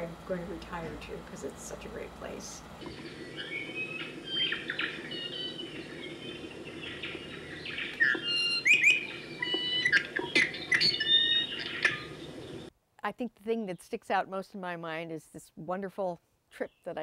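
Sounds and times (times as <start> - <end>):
steady background hiss: 0.0 - 12.7
songbirds chirping and whistling: 2.8 - 12.7.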